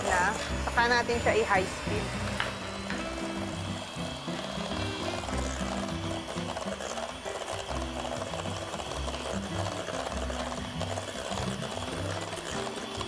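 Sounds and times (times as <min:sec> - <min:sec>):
background music: 0:00.0 - 0:13.0
electric hand mixer whining: 0:00.0 - 0:13.0.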